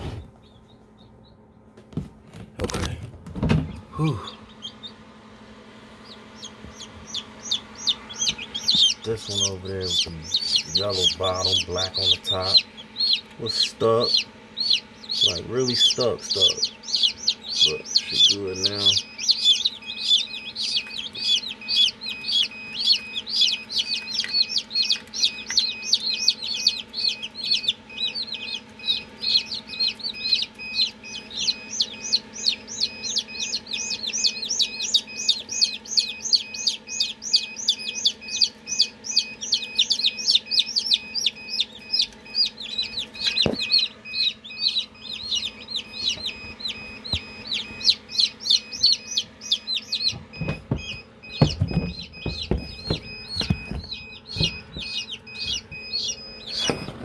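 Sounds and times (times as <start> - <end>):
chicks peeping: 0.0 - 57.0
steady low hum: 0.0 - 57.0
knock: 50.2 - 54.9.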